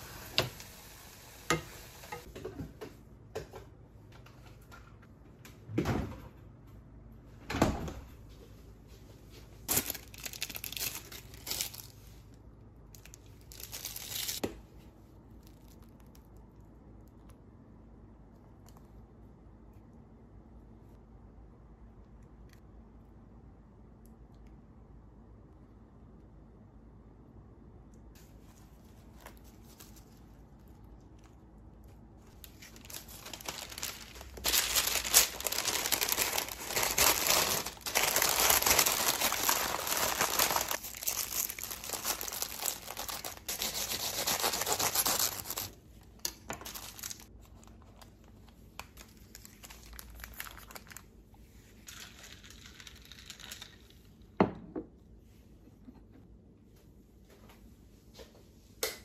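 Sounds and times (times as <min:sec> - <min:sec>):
paper crinkling: 0:09.6 - 0:12.0, 0:13.0 - 0:14.4, 0:32.3 - 0:45.8, 0:46.5 - 0:51.1.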